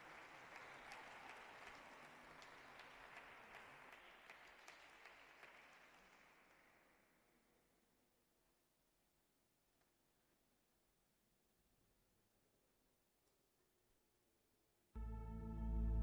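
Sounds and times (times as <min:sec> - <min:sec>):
faint audience applause: 0:00.0 - 0:07.2.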